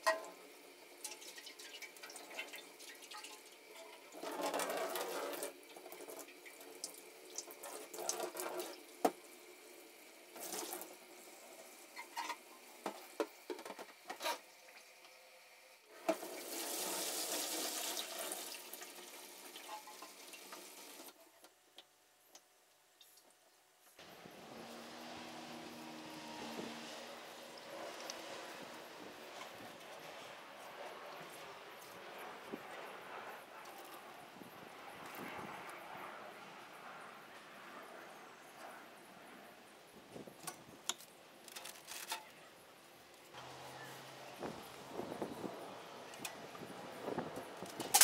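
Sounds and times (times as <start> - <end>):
water sloshing in a tank: 0.0 - 9.4
water pouring into a sink: 1.0 - 9.1, 10.3 - 10.9, 16.0 - 21.1.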